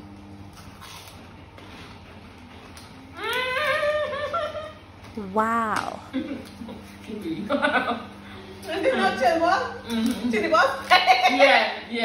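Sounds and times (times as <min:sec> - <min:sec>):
woman humming mmm of enjoyment: 0:05.2 - 0:06.2.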